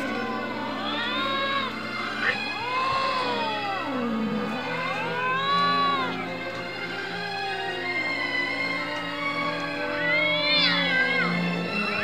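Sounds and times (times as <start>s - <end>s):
cat yowling: 0.0s - 6.4s, 9.7s - 12.0s
background music: 0.0s - 12.0s.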